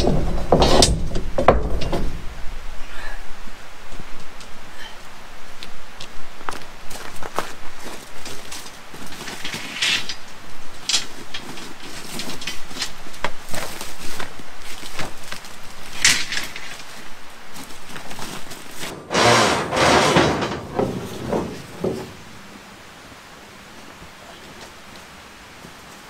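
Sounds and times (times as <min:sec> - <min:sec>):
handling knocks and clicks: 0:00.0 - 0:02.2, 0:17.9 - 0:22.2
footsteps in leaves and gravel: 0:05.6 - 0:19.0
clattering scrape: 0:09.0 - 0:10.3, 0:18.2 - 0:22.2.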